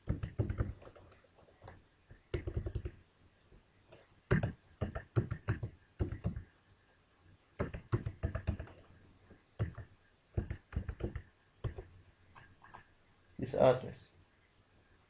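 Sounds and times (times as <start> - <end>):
computer keyboard typing: 0.0 - 3.0, 4.3 - 6.5, 7.6 - 8.9, 9.6 - 12.8.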